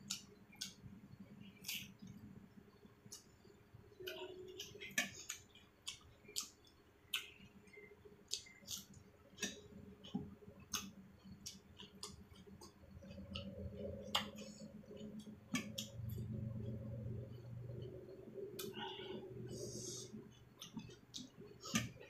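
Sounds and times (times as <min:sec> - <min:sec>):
close chewing: 0:08.3 - 0:18.0, 0:19.4 - 0:22.0.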